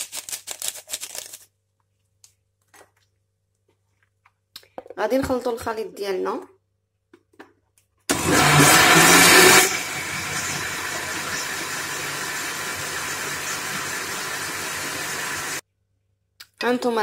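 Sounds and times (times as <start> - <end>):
electric blender running: 8.1 - 15.6.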